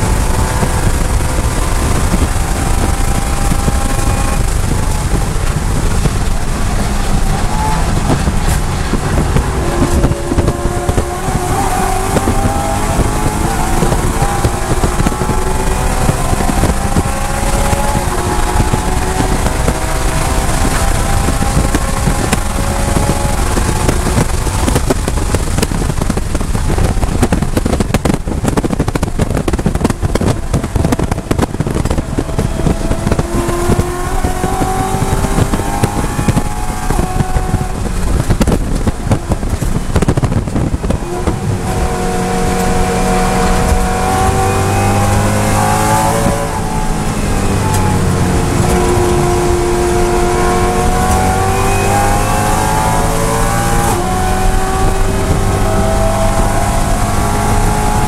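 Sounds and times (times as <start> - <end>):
car engine at full throttle: 0.0 - 58.0
wind and road noise: 0.0 - 58.0.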